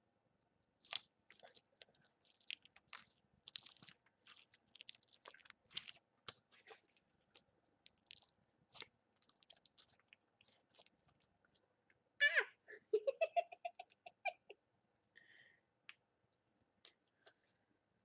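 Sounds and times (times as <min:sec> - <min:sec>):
slime wet clicks and crackles: 0:00.6 - 0:11.6.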